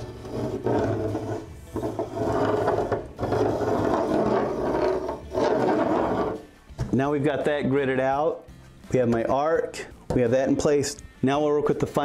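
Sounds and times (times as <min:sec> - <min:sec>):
pencil scraping across board: 0:00.0 - 0:06.5.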